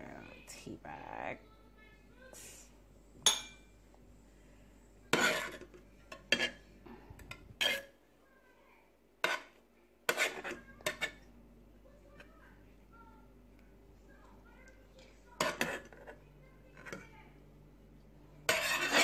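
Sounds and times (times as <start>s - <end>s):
metal spoon clinking on pot: 3.3s - 3.6s.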